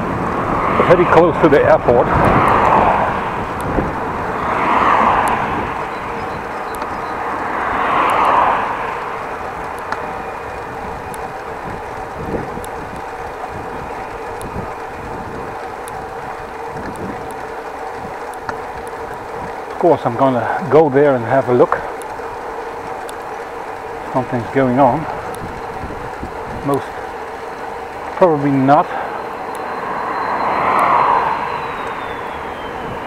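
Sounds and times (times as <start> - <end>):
road hum: 0.0 - 33.0
vehicles passing: 0.0 - 33.0
faint held tones: 21.6 - 33.0.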